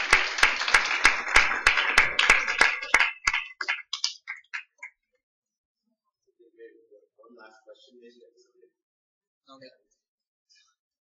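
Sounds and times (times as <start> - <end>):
audience applause: 0.0 - 4.9
loud clapper near microphone: 0.0 - 5.0.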